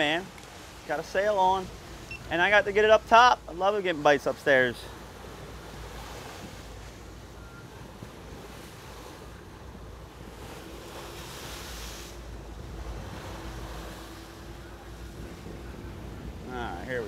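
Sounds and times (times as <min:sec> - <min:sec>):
sea wash around boat: 0:00.0 - 0:17.0
wind buffeting microphone: 0:05.2 - 0:17.0.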